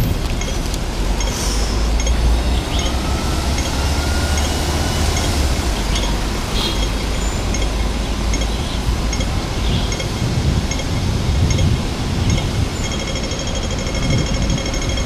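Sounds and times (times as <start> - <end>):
crossing signal beeps: 0.0 - 11.7, 12.3 - 15.0
road traffic noise: 0.0 - 15.0.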